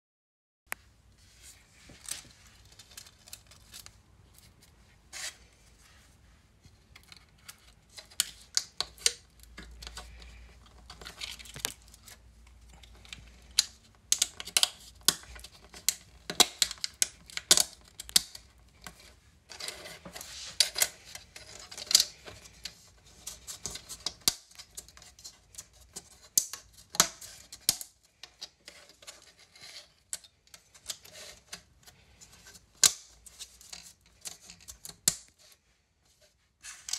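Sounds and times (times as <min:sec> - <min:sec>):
plastic parts clicking and snapping: 0:06.9 - 0:35.4.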